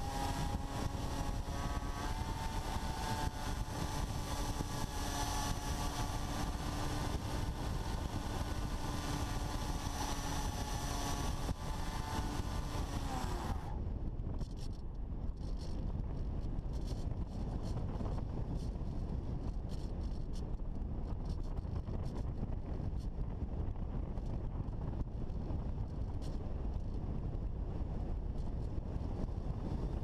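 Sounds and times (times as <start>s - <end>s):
electric motor and propeller whining: 0.0s - 13.8s.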